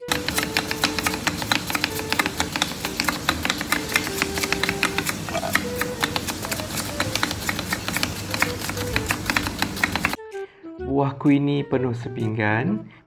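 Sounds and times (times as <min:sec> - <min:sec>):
knife chopping on cutting board: 0:00.0 - 0:10.2
background music melody: 0:00.0 - 0:13.0.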